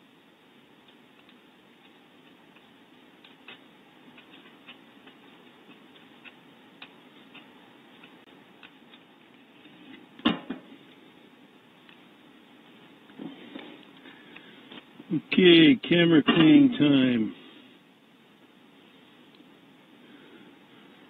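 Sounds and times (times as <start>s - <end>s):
faint steady hiss: 0.0s - 21.0s
small ticks and clicks: 0.8s - 9.4s.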